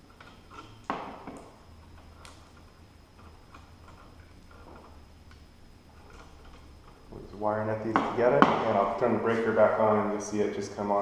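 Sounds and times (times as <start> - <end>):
wires clicking while handled: 0.1 - 7.2.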